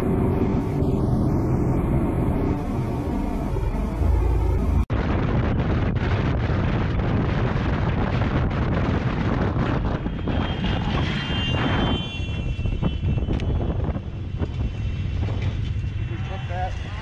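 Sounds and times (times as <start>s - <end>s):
vehicle road and wind noise: 0.0s - 17.0s
high multi-tone squeal: 9.9s - 17.0s.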